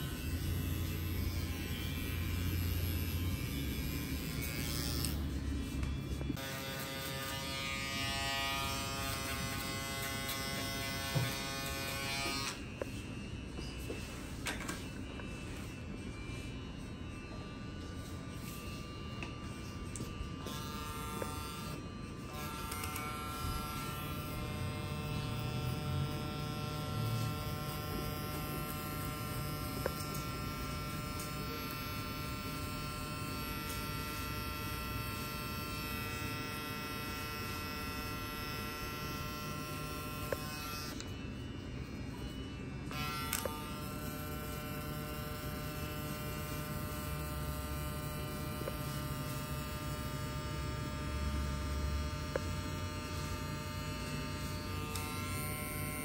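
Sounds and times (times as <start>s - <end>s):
electric hair clippers buzzing: 0.0s - 13.1s, 13.8s - 56.0s.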